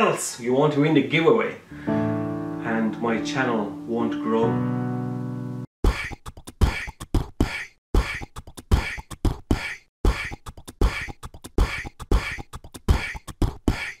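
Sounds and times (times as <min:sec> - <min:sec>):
beatboxed vocal percussion: 0:05.8 - 0:14.0.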